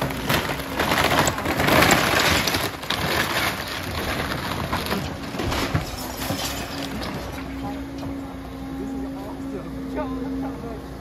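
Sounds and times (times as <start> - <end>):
wooden roof cracking and splintering: 0.0 - 7.4
roofing breaking up: 0.0 - 7.6.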